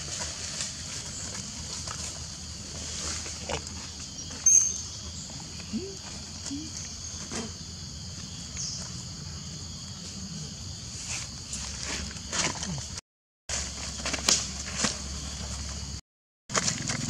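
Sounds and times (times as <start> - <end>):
dry leaves rustling: 0.0 - 4.5, 13.5 - 15.9, 16.5 - 17.0
insect chorus: 0.0 - 16.0.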